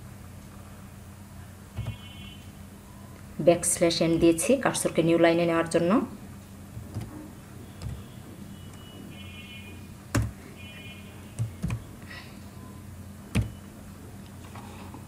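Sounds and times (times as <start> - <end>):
steady low hum: 0.0 - 15.0
keystrokes on computer keyboard: 6.8 - 7.2, 7.8 - 8.1, 11.4 - 11.9.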